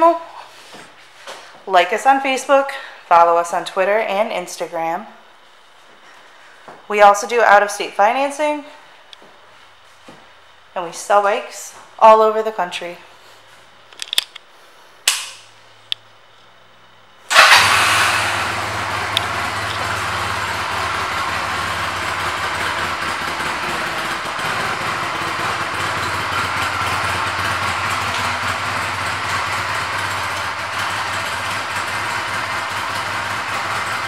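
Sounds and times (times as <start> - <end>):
motorcycle engine starting and idling: 17.3 - 34.0.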